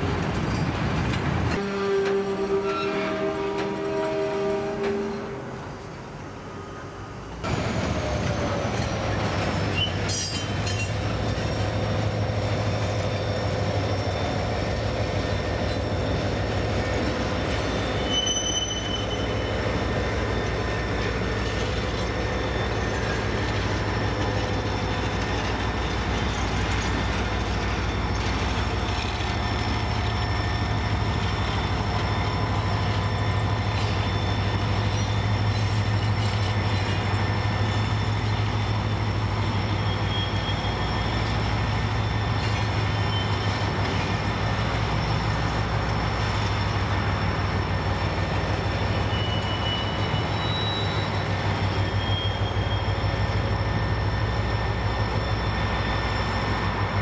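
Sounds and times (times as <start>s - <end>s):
freight train rumbling past: 0.0s - 57.0s
wheels squealing: 7.5s - 57.0s.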